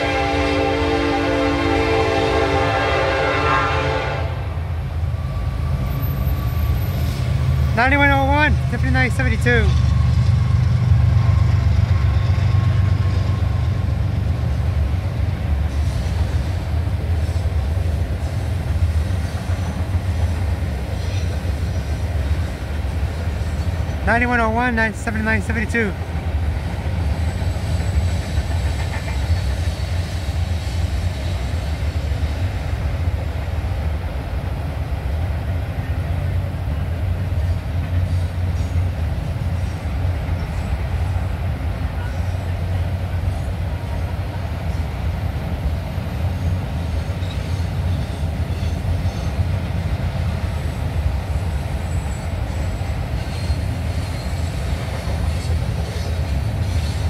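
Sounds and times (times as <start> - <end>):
freight train wheels rumbling on rails: 0.0 - 57.0
high wheel squeal: 51.4 - 57.0.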